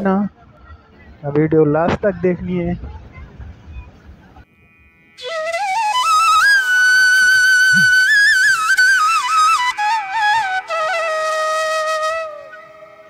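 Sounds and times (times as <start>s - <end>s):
solo flute melody: 5.1s - 13.0s.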